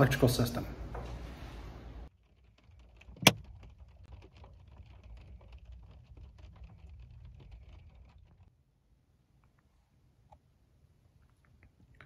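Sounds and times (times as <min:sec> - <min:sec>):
light ticking and pattering: 0:02.1 - 0:08.6.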